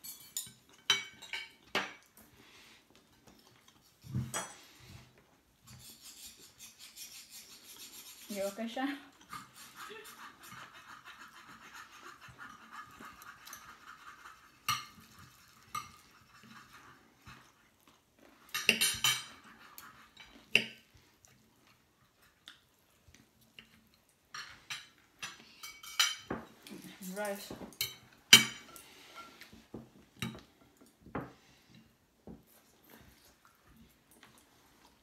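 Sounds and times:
cutlery clinking on dishes: 0:00.0 - 0:02.2, 0:03.1 - 0:04.7, 0:14.6 - 0:16.4, 0:18.4 - 0:20.9, 0:24.3 - 0:29.6, 0:30.2 - 0:30.5
knife and fork scraping plate: 0:05.6 - 0:17.5, 0:18.5 - 0:20.8.

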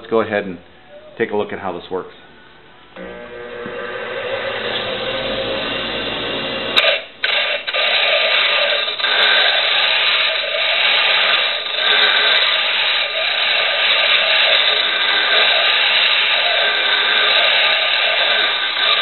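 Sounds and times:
bench grinder motor hum: 0:03.0 - 0:19.0
harsh grinding rasp: 0:06.8 - 0:19.0.

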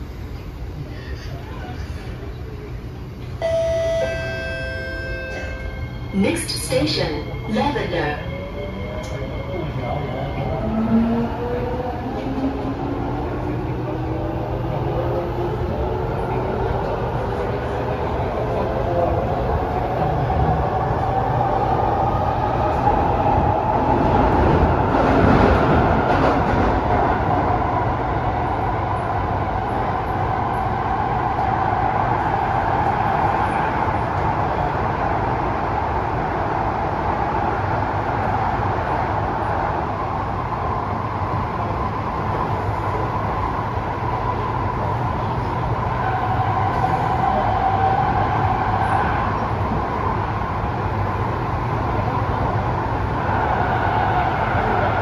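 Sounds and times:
continuous whine: 0:00.0 - 0:11.0
train wheels rumbling on rail: 0:05.3 - 0:55.0.

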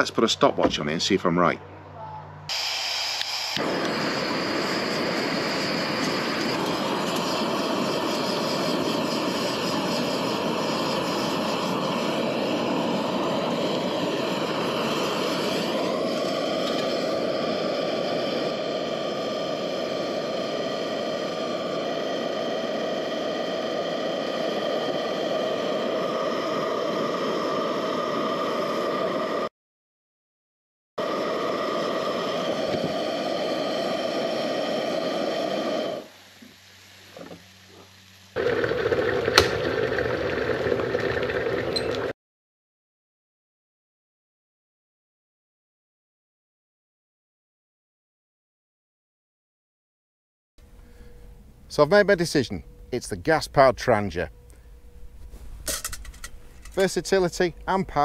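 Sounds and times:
stove burner roar: 0:02.4 - 0:29.5, 0:31.0 - 0:42.1, 0:50.6 - 0:58.0
faint high hum: 0:50.6 - 0:58.0.

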